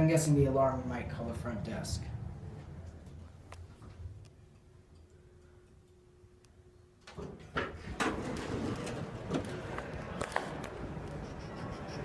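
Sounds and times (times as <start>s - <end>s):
faint elevator hum: 0.0s - 12.0s
lobby room noise: 0.0s - 12.0s
elevator doors sliding open: 7.2s - 11.0s.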